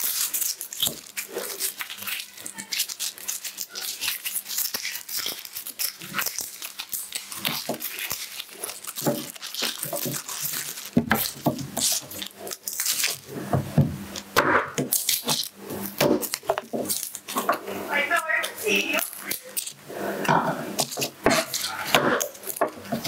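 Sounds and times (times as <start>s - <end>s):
garlic skins crinkling and tearing: 0.0s - 13.4s, 14.1s - 17.6s, 18.3s - 19.9s, 20.7s - 23.0s.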